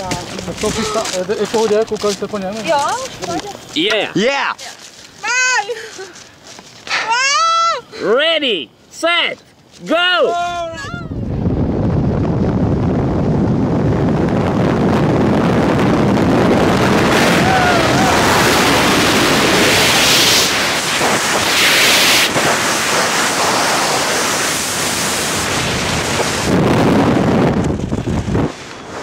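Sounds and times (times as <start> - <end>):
wind roaring over microphone: 0.0 - 3.7, 10.3 - 29.0.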